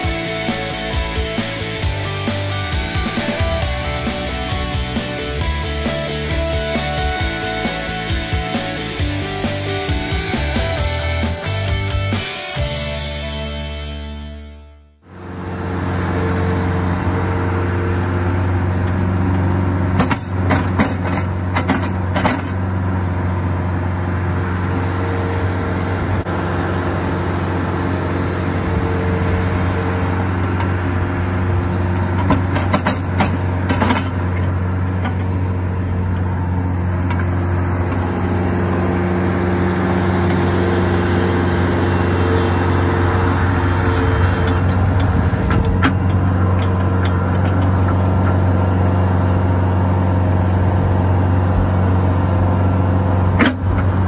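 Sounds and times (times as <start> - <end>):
diesel engine running: 0.0 - 54.0
sharp clicks and knocks: 20.0 - 22.6, 32.2 - 35.3, 44.4 - 48.4.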